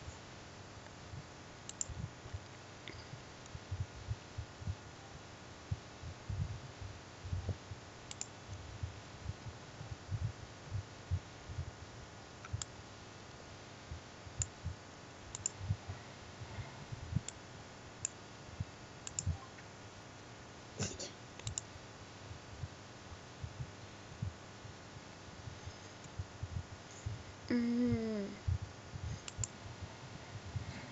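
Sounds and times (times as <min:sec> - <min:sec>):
soft low thumps: 0:01.1 - 0:07.9, 0:08.5 - 0:12.7, 0:13.9 - 0:17.3, 0:22.3 - 0:30.9
computer mouse clicking: 0:01.6 - 0:03.6, 0:08.1 - 0:08.4, 0:12.4 - 0:12.7, 0:15.3 - 0:15.6, 0:19.0 - 0:19.5, 0:21.4 - 0:21.7, 0:29.2 - 0:29.6.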